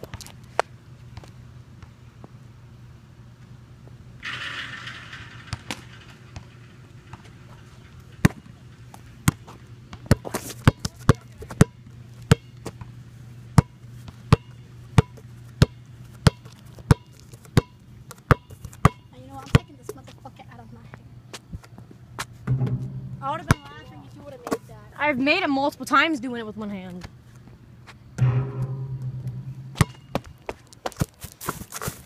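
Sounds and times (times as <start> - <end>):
steady low hum: 0.0 - 30.8
basketball bouncing on court: 22.5 - 24.0, 28.2 - 30.4.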